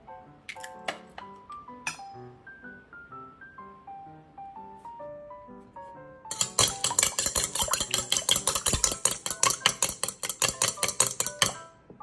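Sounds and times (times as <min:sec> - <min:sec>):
chopsticks beating eggs in metal bowl: 0:06.3 - 0:11.6.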